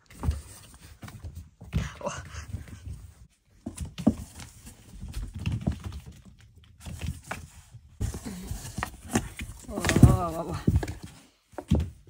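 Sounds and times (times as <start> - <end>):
kittens' paws tapping and thumping: 0.0 - 12.0.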